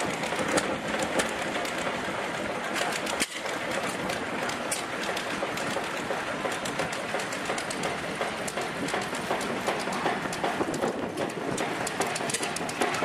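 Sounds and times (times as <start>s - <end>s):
stationary engine clattering: 0.0s - 13.0s.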